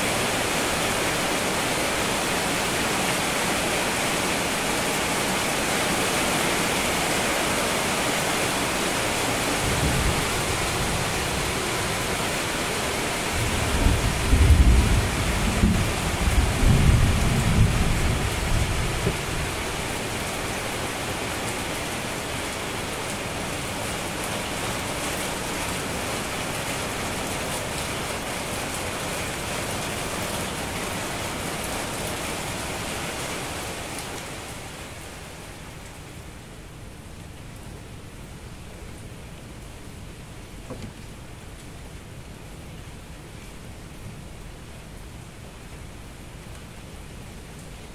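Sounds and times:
steady rain: 0.0s - 47.9s
low thunder rumble: 13.4s - 19.6s.

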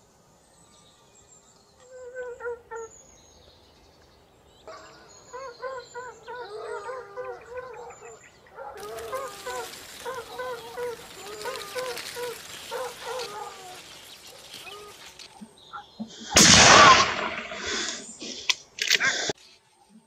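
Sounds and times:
short bird calls: 4.7s - 18.4s
gunshot with echo: 16.3s - 18.0s.

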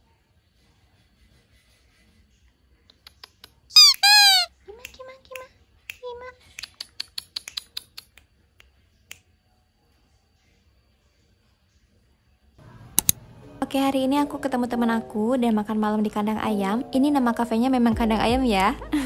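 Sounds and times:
cat chirps: 3.2s - 4.5s.

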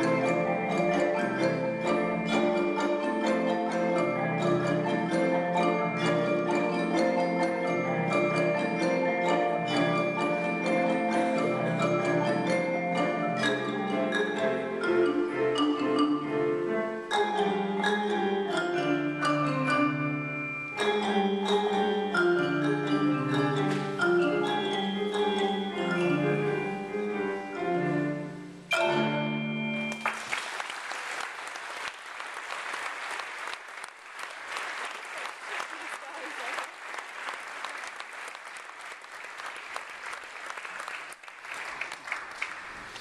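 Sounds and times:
marimba and mallet percussion: 0.0s - 30.2s
audience applauding: 29.9s - 43.0s.

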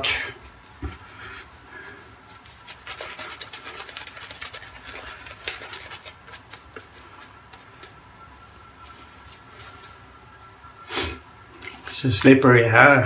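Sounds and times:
shaving brush scratching stubble: 0.5s - 7.8s.

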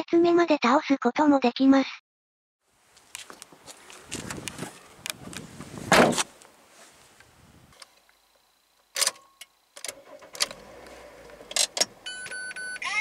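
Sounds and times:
car tailgate slamming: 5.8s - 6.3s
car engine starting and idling: 9.8s - 12.9s.

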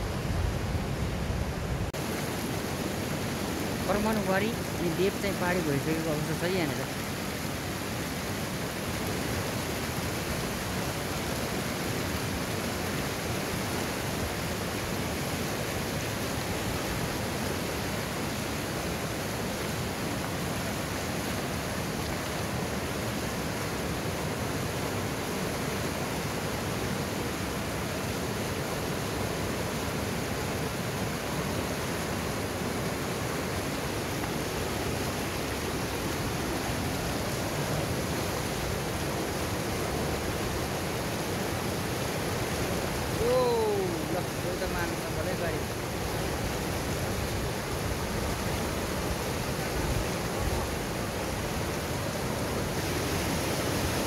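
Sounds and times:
river rushing over rapids: 0.0s - 54.0s.

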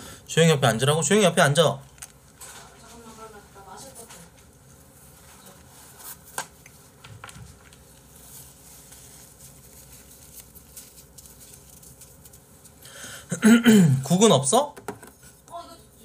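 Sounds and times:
clicks and rustles of eating: 1.9s - 2.8s.

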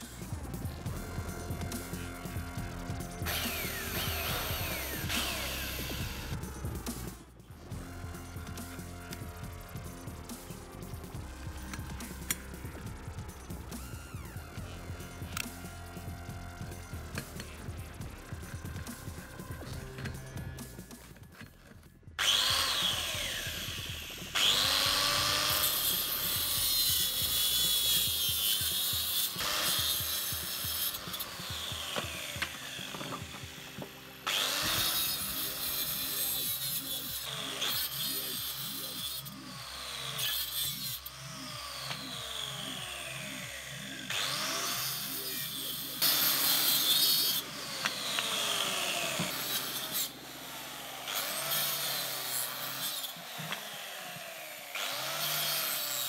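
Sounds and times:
electric cutter motor whine: 0.0s - 56.0s
saw teeth rasping in wood: 0.0s - 56.0s.

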